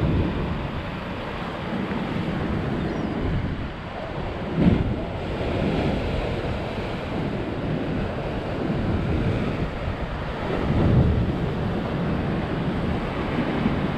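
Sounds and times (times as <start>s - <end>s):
sea surf on rocks: 0.0s - 13.9s
wind buffeting microphone: 0.0s - 13.9s.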